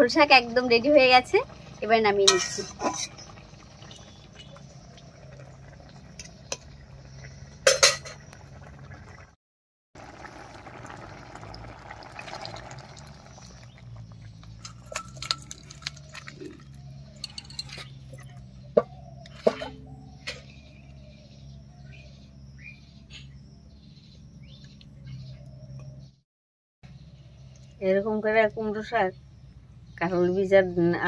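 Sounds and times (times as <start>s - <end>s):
curry bubbling in a pot: 0.1s - 9.4s, 10.0s - 19.2s
utensil clinking against a pot: 2.2s - 3.4s, 7.6s - 8.3s, 14.4s - 18.5s.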